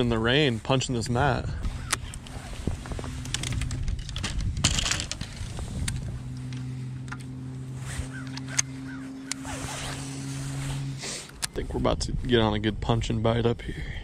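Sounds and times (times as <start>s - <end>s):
electric motor humming: 1.7s - 11.6s.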